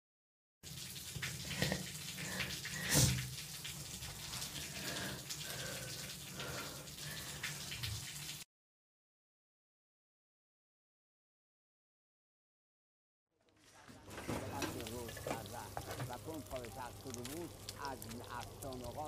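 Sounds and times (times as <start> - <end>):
water running: 0.6 - 8.5, 13.5 - 19.0
small clicks and splashes: 0.7 - 8.4, 13.4 - 19.0.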